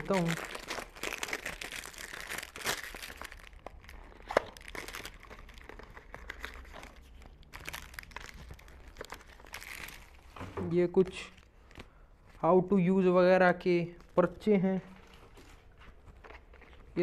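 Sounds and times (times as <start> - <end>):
cardboard box crinkling: 0.0 - 10.4.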